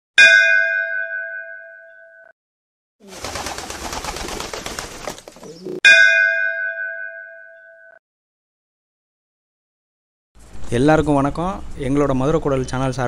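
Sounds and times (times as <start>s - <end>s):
struck bell ringing: 0.2s - 2.2s, 5.9s - 8.0s
pigeons fluttering off: 3.0s - 5.8s
pigeon cooing: 5.3s - 5.8s.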